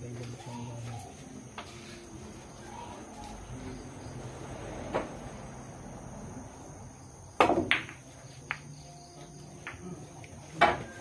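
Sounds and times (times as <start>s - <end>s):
pool cue striking ball: 7.4s - 8.7s
pool balls clacking: 7.4s - 11.0s.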